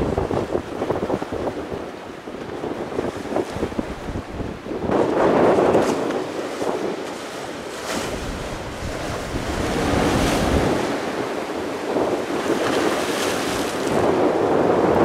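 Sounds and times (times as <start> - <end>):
ocean surf breaking: 0.0 - 15.0
wind buffeting the microphone: 0.0 - 15.0.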